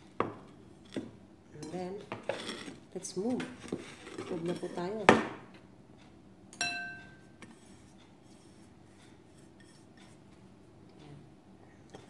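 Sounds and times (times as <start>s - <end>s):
dishes rustling on table: 0.2s - 5.3s
tableware clinking: 6.6s - 7.3s.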